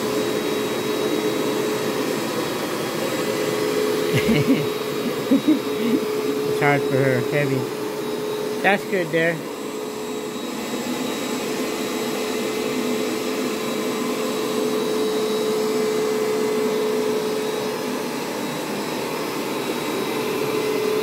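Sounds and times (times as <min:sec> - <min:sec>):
carpet cleaner motor hum: 0:00.0 - 0:21.0.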